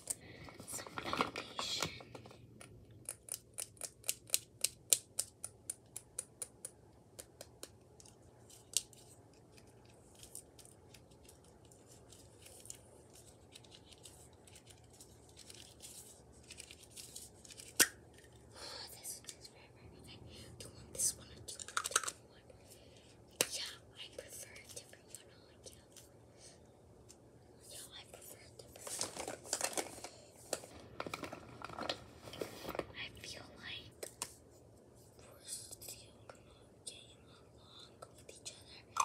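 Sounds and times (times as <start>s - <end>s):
packaging rustling: 9.6s - 17.8s, 28.7s - 33.0s.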